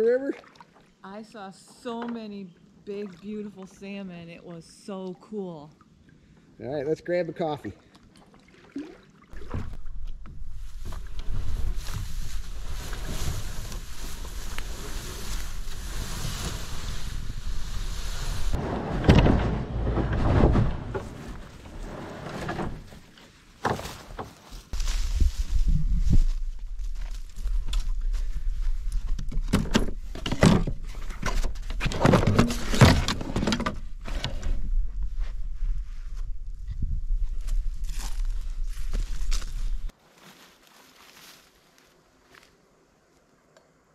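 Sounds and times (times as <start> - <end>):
kayak dragged onto grass: 9.4 - 27.8, 28.8 - 36.2
wind buffeting microphone: 34.6 - 39.9.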